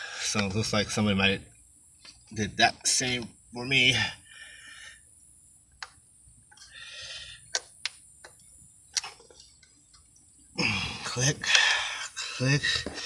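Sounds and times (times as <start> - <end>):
small sharp clicks: 7.5 - 10.2.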